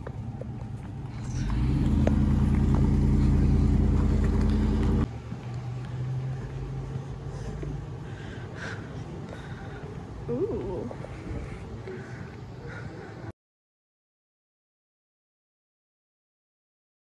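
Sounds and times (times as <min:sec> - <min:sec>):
truck engine running: 0:00.0 - 0:08.6
low hum: 0:00.0 - 0:12.4.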